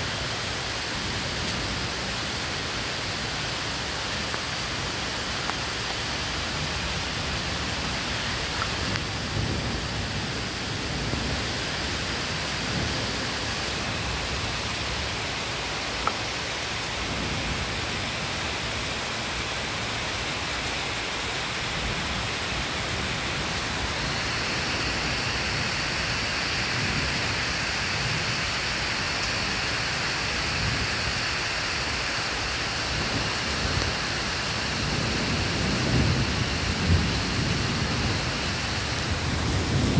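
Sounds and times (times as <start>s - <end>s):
steady rain falling: 0.0s - 39.9s
faint thunder rumbling: 0.1s - 39.9s.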